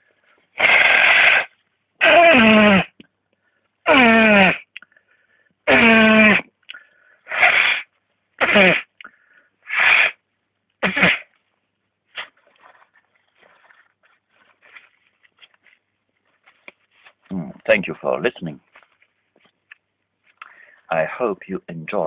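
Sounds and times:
person sneezing: 5.7 - 6.4, 7.3 - 8.9, 10.8 - 11.3.

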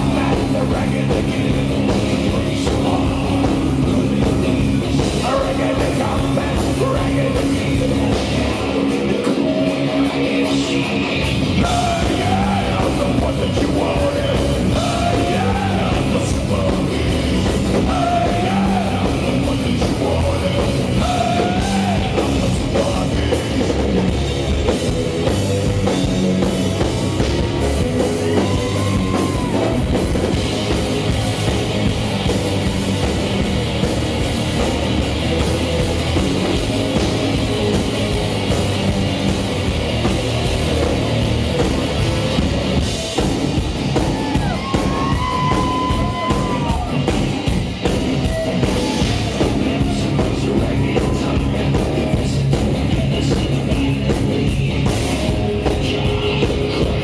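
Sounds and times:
singer yelling and singing: 0.0 - 26.5, 27.2 - 32.7, 43.8 - 57.0
heavy metal band playing: 0.0 - 57.0.

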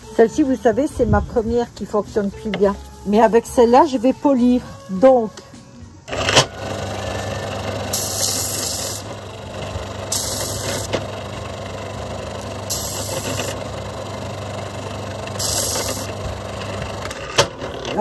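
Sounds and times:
sander motor humming: 6.1 - 18.0
hissing grind of sanding: 6.6 - 11.1, 12.0 - 13.8, 15.0 - 17.0.

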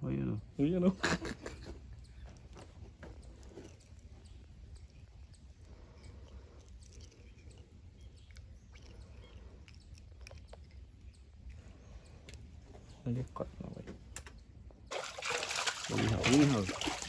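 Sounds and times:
faint bird chirps: 1.5 - 14.9.

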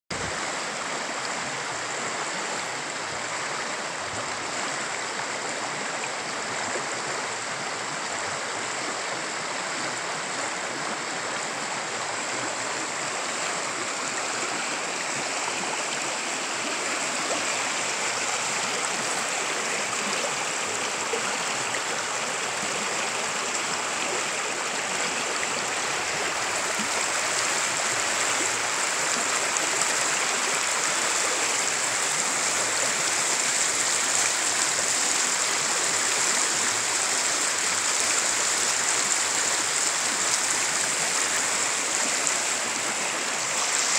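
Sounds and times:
river rushing over rocks: 0.1 - 43.9.

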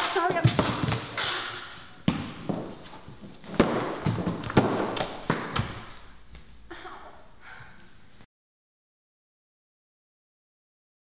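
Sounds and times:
thuds on wooden floor: 2.0 - 6.0.

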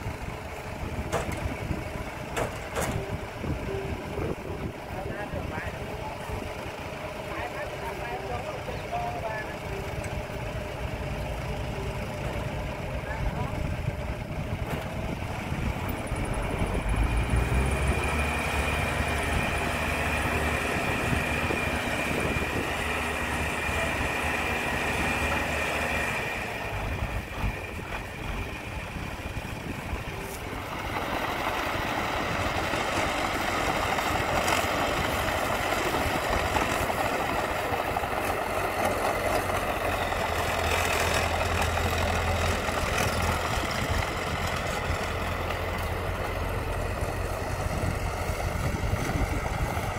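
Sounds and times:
bulldozer diesel engine running: 0.0 - 49.9
dump truck diesel engine whining: 0.0 - 49.9
soil unloading: 16.8 - 49.9.

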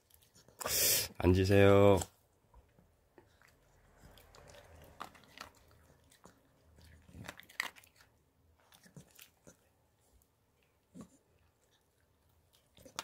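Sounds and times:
dog crunching dry food: 3.2 - 9.7, 11.7 - 13.0.

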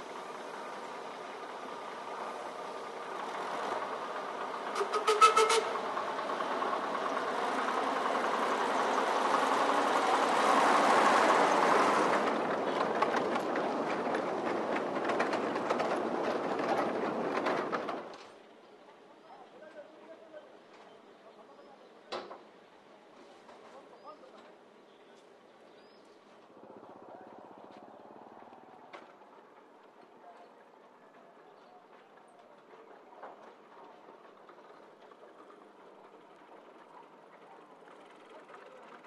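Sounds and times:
train wheels clattering over rail joints: 2.6 - 18.4, 26.8 - 39.0
train horn toot: 4.8 - 5.8.

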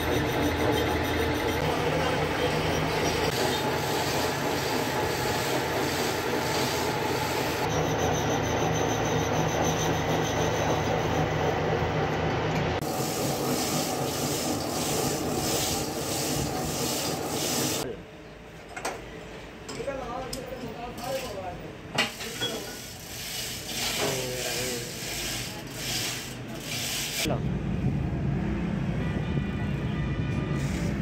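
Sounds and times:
grinding wheel hissing: 0.0 - 12.0, 12.8 - 17.8, 22.1 - 27.3.

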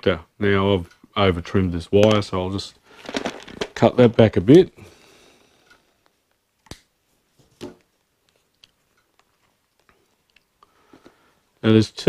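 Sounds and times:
ticks of small parts handled: 2.0 - 2.3, 2.9 - 4.3.

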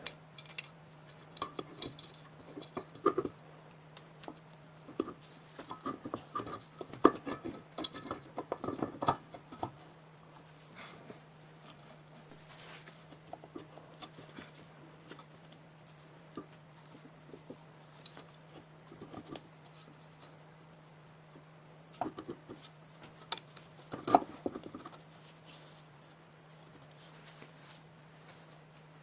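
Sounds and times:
tools tapping and scraping: 0.0 - 20.4, 21.4 - 25.7
steady low hum: 0.0 - 29.0.

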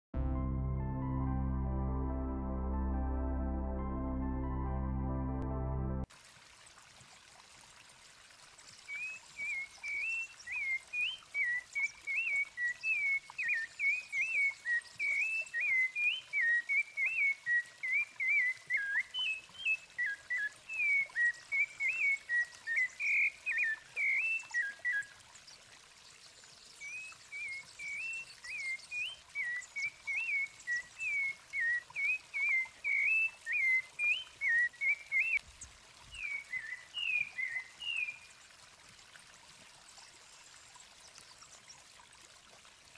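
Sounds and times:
thrush singing whistled notes: 36.2 - 38.2.

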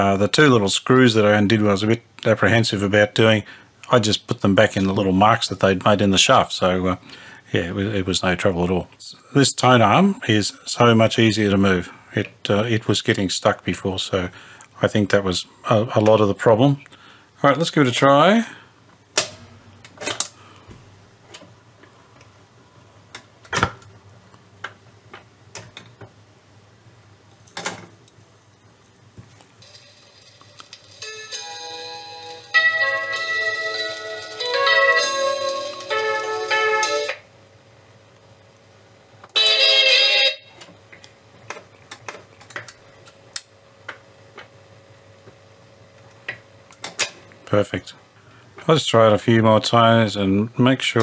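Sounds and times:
low steady hum: 0.0 - 51.0
record changer clicks and clunks: 19.1 - 20.4.

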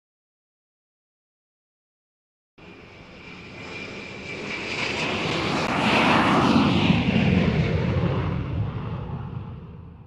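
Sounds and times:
aircraft fly-by rush: 2.6 - 10.0.

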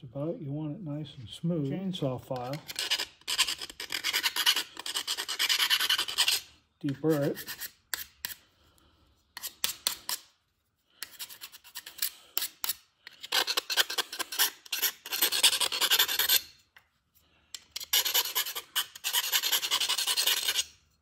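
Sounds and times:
file rasping in metal hole: 2.4 - 8.4, 11.0 - 16.5, 17.8 - 20.8.

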